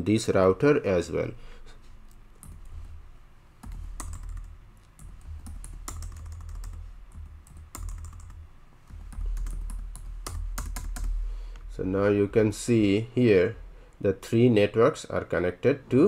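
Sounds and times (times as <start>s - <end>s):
computer keyboard typing: 2.4s - 2.8s, 3.6s - 11.2s.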